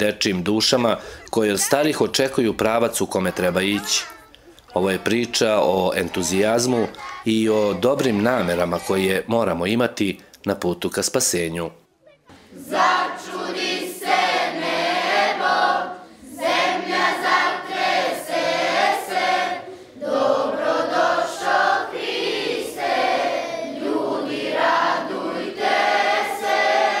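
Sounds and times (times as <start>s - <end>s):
children's choir singing: 4.7s - 9.2s, 12.3s - 27.0s.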